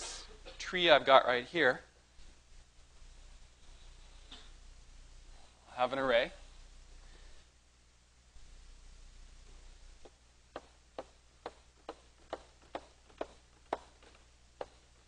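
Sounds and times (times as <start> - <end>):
chalk tapping on blackboard: 10.0 - 14.8.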